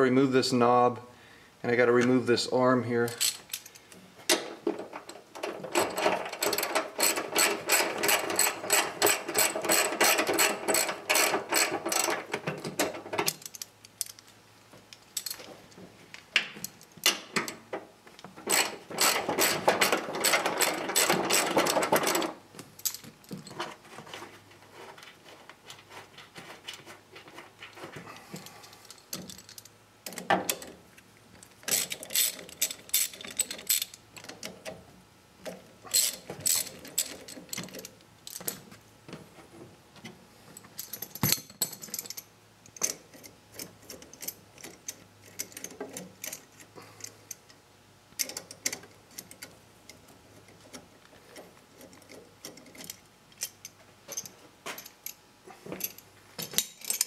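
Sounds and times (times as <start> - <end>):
metallic clicking and clinking: 51.7 - 57.0.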